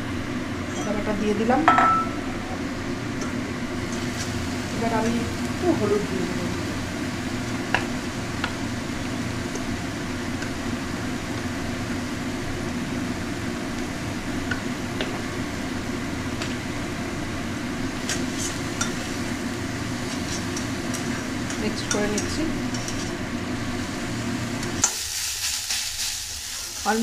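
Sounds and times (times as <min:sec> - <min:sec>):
greens sizzling in a wok: 0:02.6 - 0:27.0
metal spatula scraping a pan: 0:22.7 - 0:23.2.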